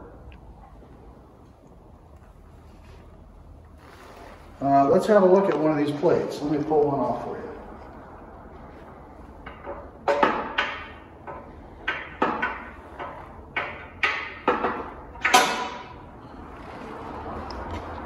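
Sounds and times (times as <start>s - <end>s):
metal knocks and clanks: 9.3s - 16.5s.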